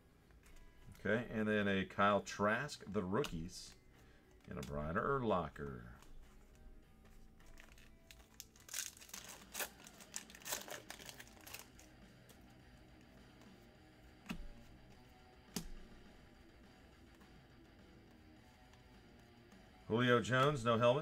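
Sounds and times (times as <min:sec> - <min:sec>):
plastic wrapper tearing and crinkling: 0:07.2 - 0:12.4.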